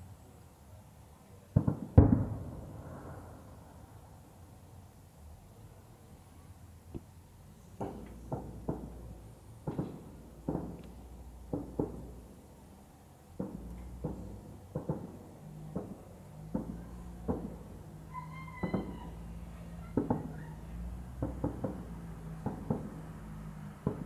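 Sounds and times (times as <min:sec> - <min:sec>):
distant fireworks bangs with echo: 0:01.5 - 0:03.5, 0:07.8 - 0:12.4, 0:13.4 - 0:24.0.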